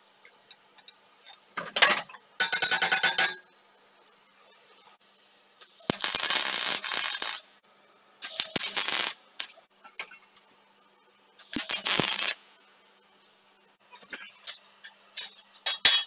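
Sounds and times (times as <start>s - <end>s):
arc welding crackling: 5.6s - 7.6s, 8.2s - 10.4s, 11.4s - 13.3s.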